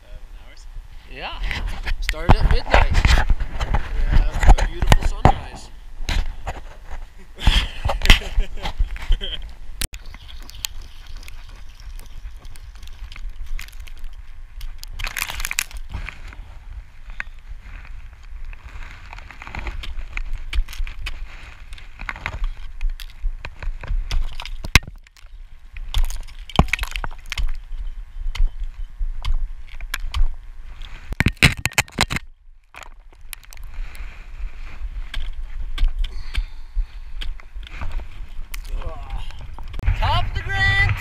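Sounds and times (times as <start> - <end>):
ice axe striking ice: 25.8 - 27.6
low rumble: 39.2 - 41.0.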